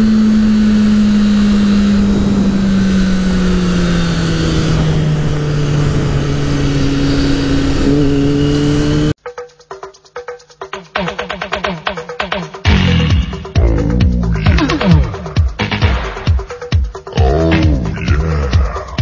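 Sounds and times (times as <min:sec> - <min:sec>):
motorcycle engine running: 0:00.0 - 0:09.2.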